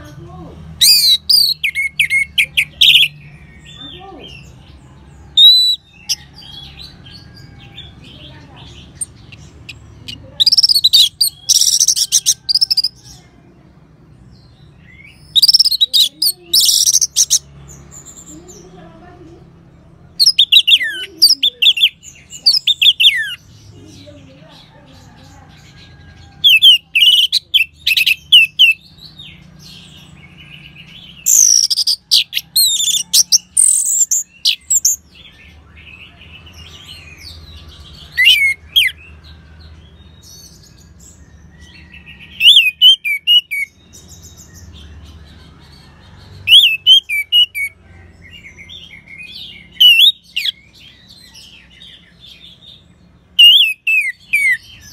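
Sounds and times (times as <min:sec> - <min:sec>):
thrush singing whistled phrases: 0:53.4 - 0:54.6.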